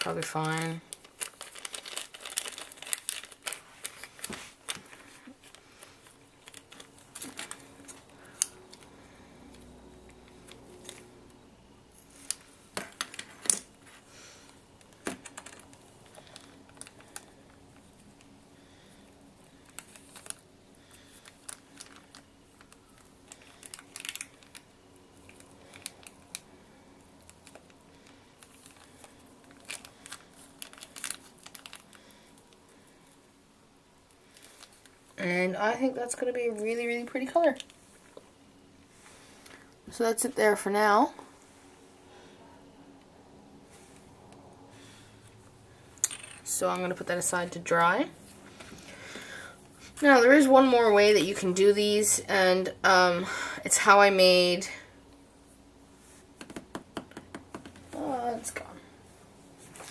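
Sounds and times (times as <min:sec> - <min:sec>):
plastic bag crinkling: 0:00.0 - 0:09.3, 0:10.1 - 0:33.2, 0:34.2 - 0:35.2.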